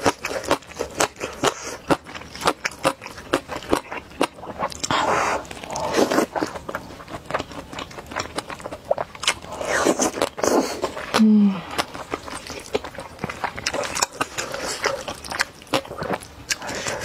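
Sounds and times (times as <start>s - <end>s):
wet chewing with mouth clicks: 0.0s - 17.0s
noodles being slurped: 9.3s - 17.0s.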